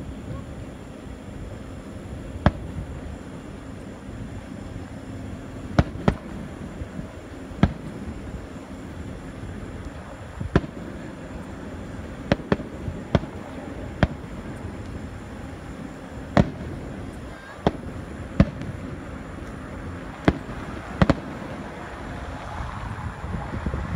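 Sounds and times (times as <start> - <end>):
fireworks bangs: 2.3 - 22.9.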